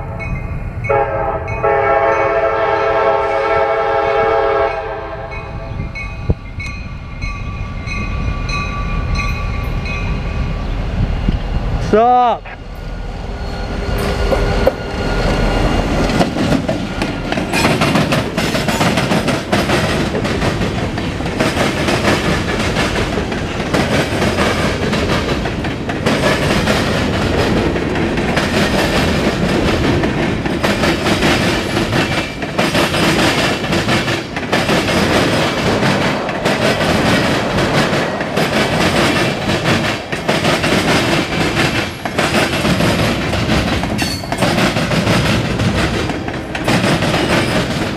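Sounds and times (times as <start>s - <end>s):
diesel locomotive passing: 0.0s - 47.9s
freight cars rumbling: 5.6s - 47.9s
wheels clacking over rail joints: 14.0s - 47.9s.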